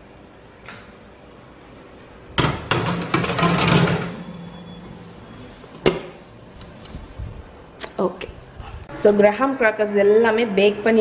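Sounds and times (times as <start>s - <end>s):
metal tray clattering on rack: 2.4s - 4.2s.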